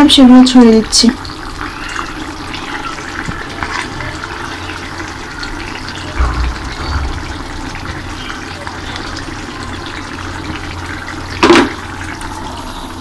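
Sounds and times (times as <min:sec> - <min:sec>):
curry simmering with bubbles: 0:00.0 - 0:13.0
brief low thuds: 0:06.2 - 0:08.2.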